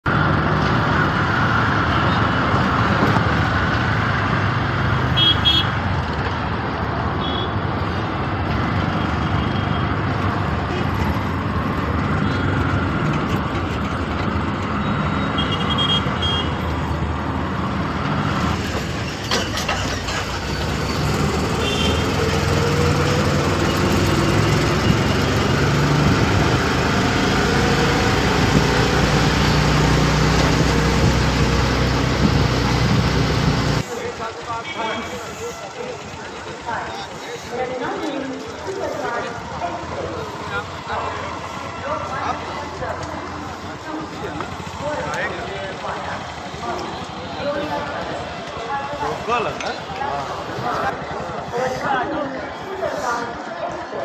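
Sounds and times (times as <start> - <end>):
road noise: 0.0 - 54.0
auto-rickshaw engine running: 0.1 - 54.0
vehicle horns tooting: 5.1 - 5.8, 7.2 - 7.6, 15.1 - 16.6, 21.4 - 22.3, 34.6 - 35.4.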